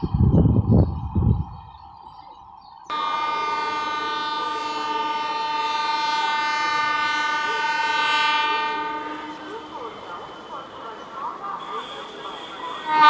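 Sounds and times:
train horn long blast: 0:02.9 - 0:13.0.

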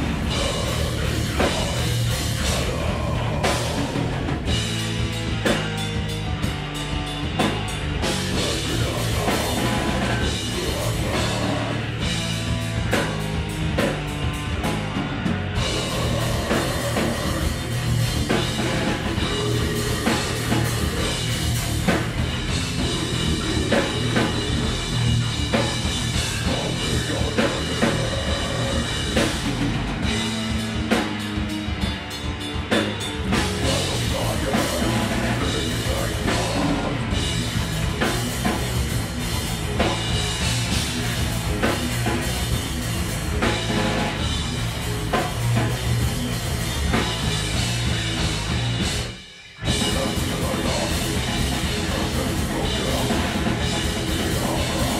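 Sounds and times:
fast drum kit: 0:00.0 - 0:54.9
live heavy rock band: 0:00.0 - 0:54.9.

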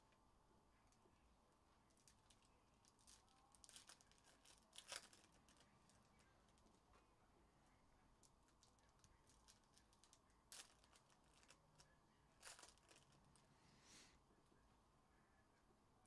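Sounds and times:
foil wrappers crinkling and tearing: 0:01.9 - 0:06.8, 0:08.5 - 0:13.4.

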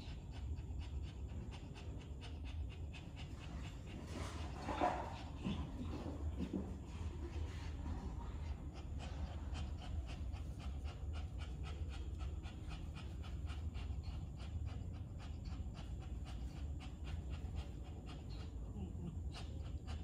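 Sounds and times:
dog panting rapidly: 0:00.0 - 0:20.0
steady low hum: 0:00.0 - 0:20.0.

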